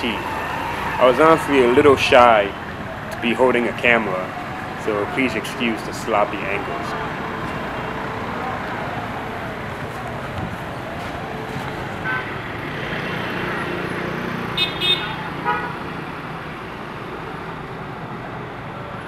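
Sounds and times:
passing vehicles: 0:00.0 - 0:19.0
car horn toots: 0:14.6 - 0:15.8.

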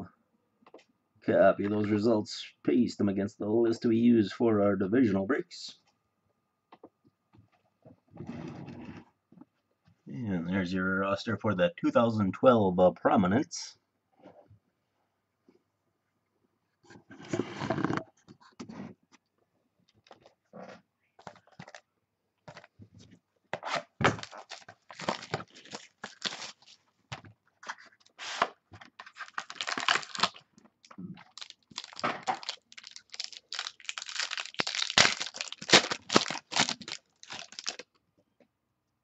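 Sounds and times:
packaging tearing and crinkling: 0:24.1 - 0:26.8, 0:28.0 - 0:37.9.

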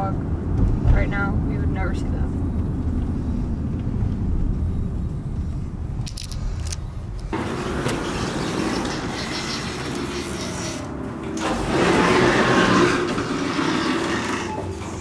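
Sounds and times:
car interior road noise: 0:00.0 - 0:11.6.

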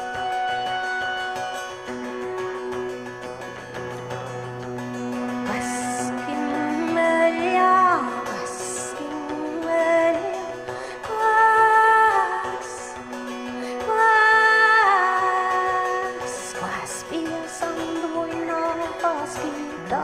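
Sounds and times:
woman singing: 0:05.2 - 0:20.0.

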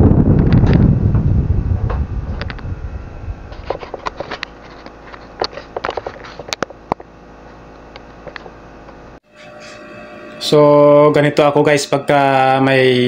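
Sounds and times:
fan air rushing on microphone: 0:00.0 - 0:07.8.

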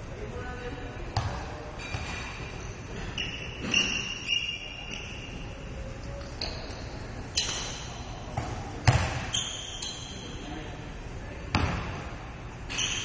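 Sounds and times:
basketball bouncing: 0:01.2 - 0:02.2, 0:08.3 - 0:09.3, 0:11.5 - 0:12.0
shoes squeaking on gym floor: 0:01.8 - 0:08.1, 0:09.2 - 0:10.4, 0:12.7 - 0:13.0.

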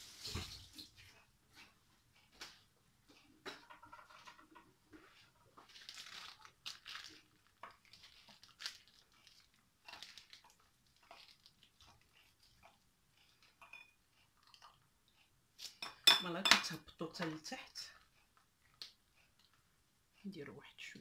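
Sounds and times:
plastic bag crinkling: 0:05.6 - 0:11.8.

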